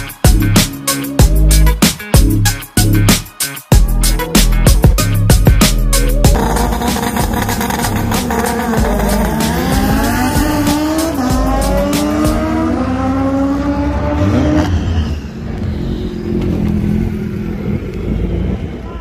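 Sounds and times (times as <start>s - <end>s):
racing car engine full throttle: 4.1s - 19.0s
cars idling at start line: 6.4s - 10.8s.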